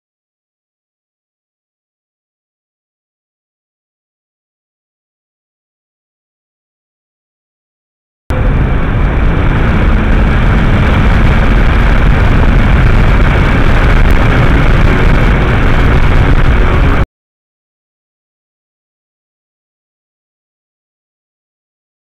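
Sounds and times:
car cabin road and engine noise: 0:08.3 - 0:17.0.

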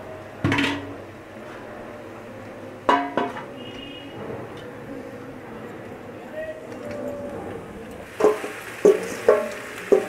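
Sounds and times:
low steady hiss: 0:08.0 - 0:10.0.

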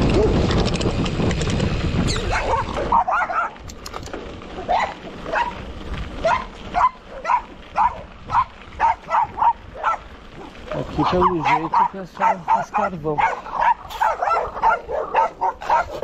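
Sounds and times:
low wind rumble on microphone: 0:00.0 - 0:16.0
dogs barking: 0:02.2 - 0:03.7, 0:04.6 - 0:05.6, 0:06.2 - 0:16.0.

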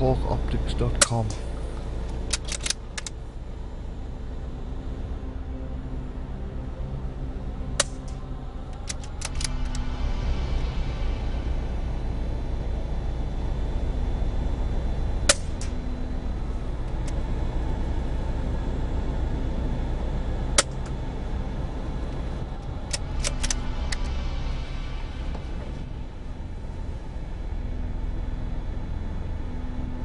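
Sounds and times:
steady low rumble: 0:00.0 - 0:30.0
rifle bolt clicks: 0:02.3 - 0:03.2, 0:08.8 - 0:09.8, 0:22.9 - 0:24.1.

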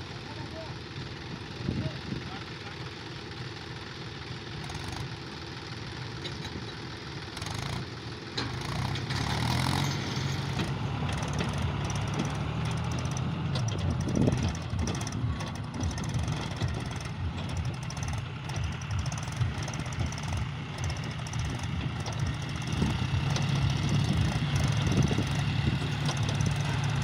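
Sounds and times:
tractor diesel engines under load: 0:00.0 - 0:27.0.

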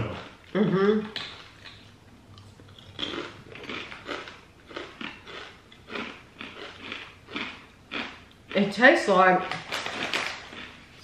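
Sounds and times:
potato chips crunching: 0:02.4 - 0:08.6, 0:09.4 - 0:11.0.

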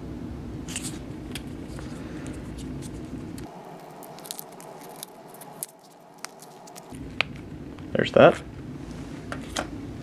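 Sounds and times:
foil lid peeling crackles: 0:02.5 - 0:07.0.

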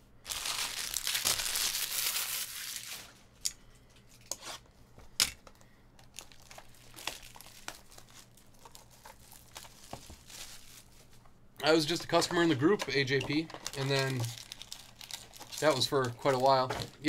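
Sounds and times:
plastic shrink-wrap crinkling and tearing: 0:00.2 - 0:03.2, 0:06.0 - 0:16.7.

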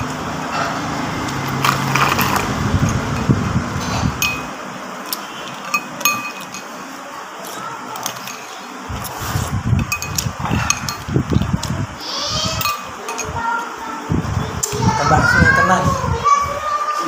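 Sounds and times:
low hum: 0:00.0 - 0:04.8
cutlery clinking on ceramic bowl: 0:05.4 - 0:06.7.

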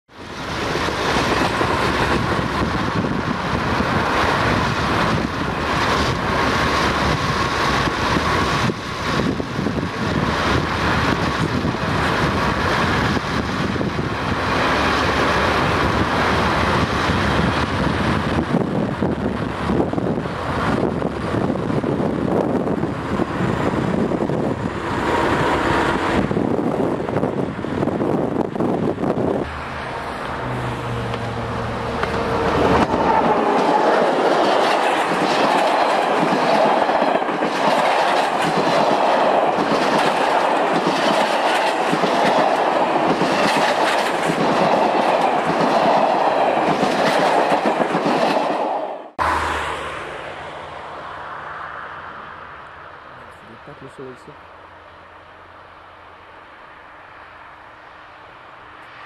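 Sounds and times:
vehicle interior rumble and rush: 0:17.1 - 0:34.0.

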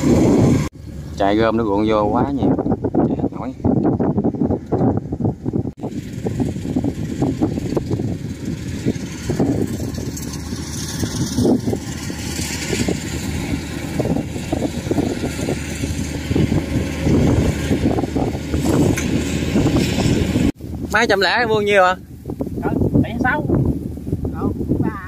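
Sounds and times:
combine harvester running: 0:05.8 - 0:20.5.

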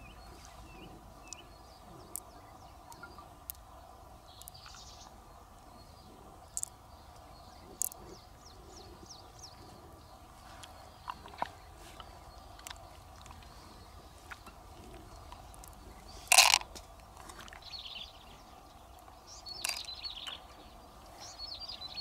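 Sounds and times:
bird chirps: 0:00.0 - 0:22.0
pearls clicking together: 0:06.5 - 0:06.8, 0:07.8 - 0:08.0, 0:15.3 - 0:16.7, 0:19.5 - 0:20.0.

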